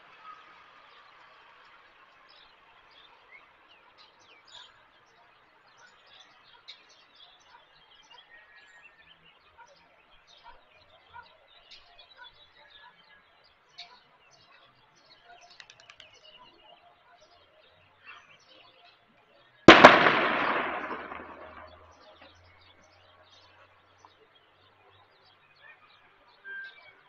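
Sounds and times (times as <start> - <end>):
faint bird chirps: 2.1 - 19.7, 20.7 - 27.0
loud bang: 19.7 - 21.9.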